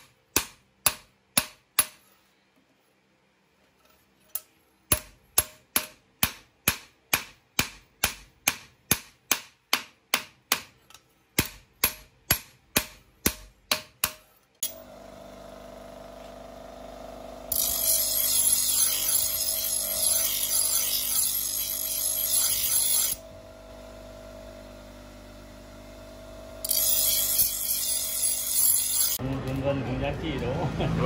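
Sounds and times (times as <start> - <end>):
hammer forging steel: 0.0 - 2.1, 4.3 - 14.8
steady machine hum: 14.6 - 18.6, 23.2 - 28.6.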